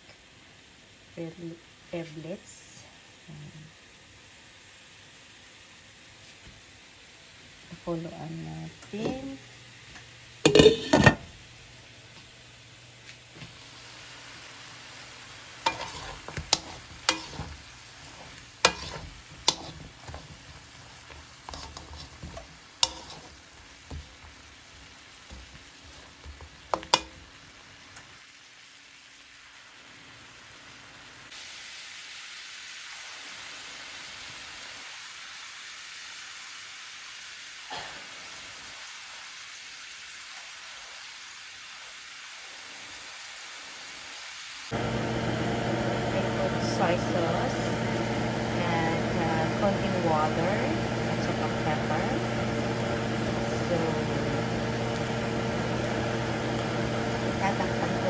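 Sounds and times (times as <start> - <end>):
food sizzling in a wok: 0.0 - 58.0
utensil scraping a pan: 10.5 - 11.2, 15.6 - 27.2.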